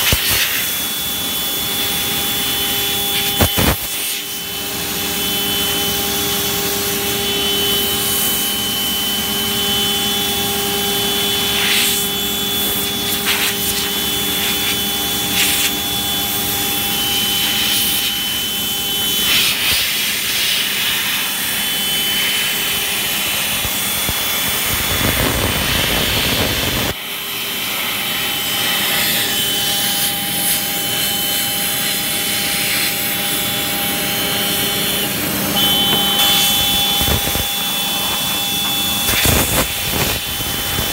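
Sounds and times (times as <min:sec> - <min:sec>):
router spindle whining: 0:20.7 - 0:40.9.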